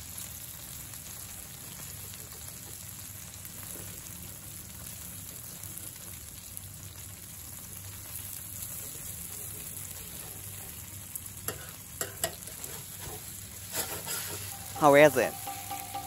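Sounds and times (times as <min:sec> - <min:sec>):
food sizzling on griddle: 0:00.0 - 0:16.0
metal clicks on griddle: 0:11.5 - 0:12.5, 0:13.7 - 0:16.0.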